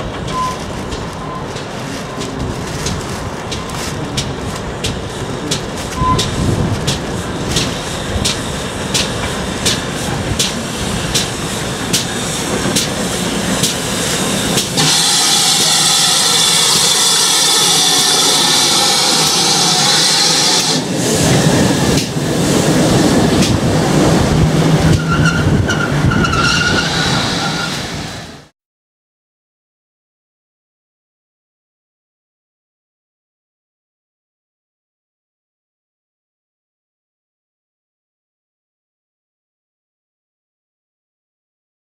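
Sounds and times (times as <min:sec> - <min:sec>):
steam locomotive chuffing: 0:00.0 - 0:28.3
carriages rumbling on rails: 0:00.0 - 0:28.5
loud steam hiss: 0:00.1 - 0:28.5.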